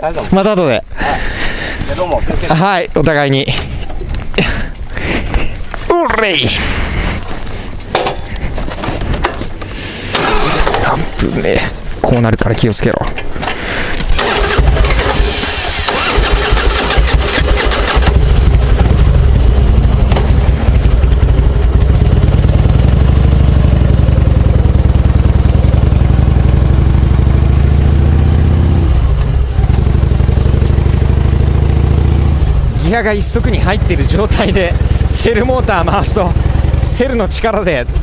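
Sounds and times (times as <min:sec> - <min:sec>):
electric starter cranking: 0:10.1 - 0:11.0, 0:13.4 - 0:18.9
motorcycle engine idling: 0:14.4 - 0:38.0.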